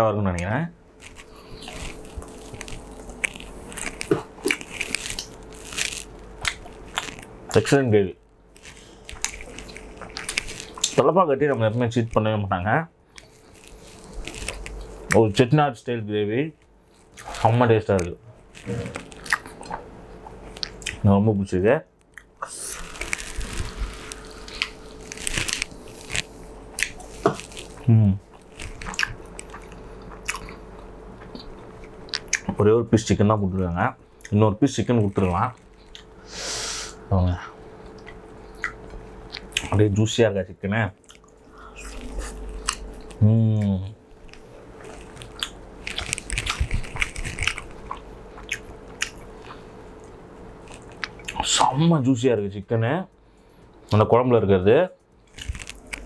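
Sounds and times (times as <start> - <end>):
faint steady hum: 0.0 - 56.0
person chewing: 1.0 - 7.7, 8.5 - 11.0, 13.1 - 15.2, 16.7 - 21.0, 22.0 - 32.6, 34.2 - 36.8, 37.6 - 39.8, 41.0 - 51.5, 55.1 - 56.0.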